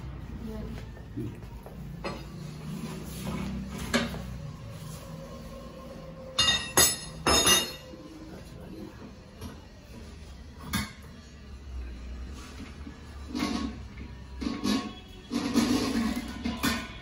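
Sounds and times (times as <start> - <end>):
metal bowl clanking and rattling: 6.4 - 7.9, 13.3 - 17.0.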